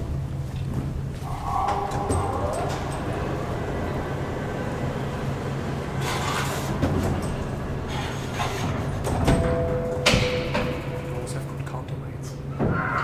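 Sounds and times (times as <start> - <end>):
steady low hum: 0.0 - 13.0
steady tone: 1.2 - 6.0.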